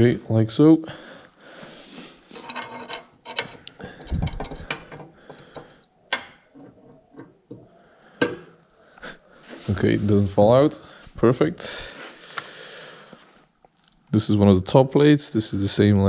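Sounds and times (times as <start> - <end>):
metal parts clicking and rattling: 2.4 - 5.1.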